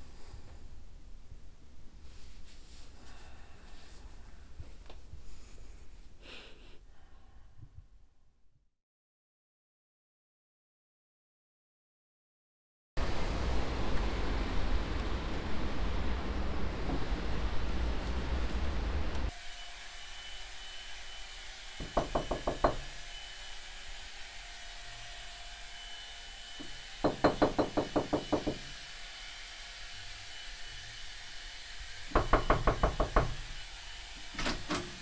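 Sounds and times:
knocking on a door: 21.8 - 22.8, 26.6 - 28.6, 32.1 - 33.4.

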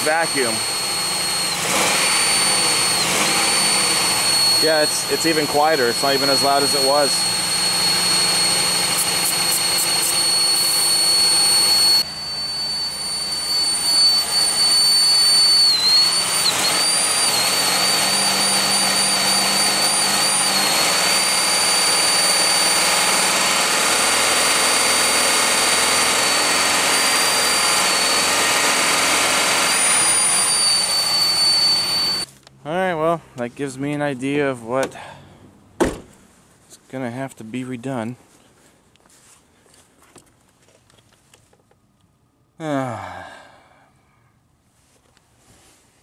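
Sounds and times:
car engine idling: 0.0 - 6.2
high-pitched vacuum leak whistle: 0.0 - 32.3
aerosol can hissing: 8.8 - 11.0.

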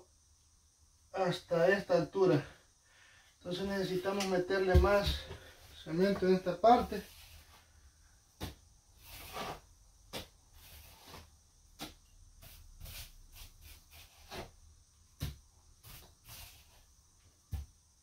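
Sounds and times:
trowel scraping mortar: 9.0 - 9.7, 10.6 - 14.5.

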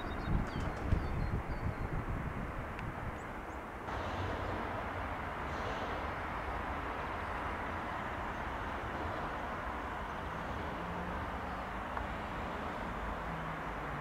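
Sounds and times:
distant electric train rushing: 3.9 - 14.0.

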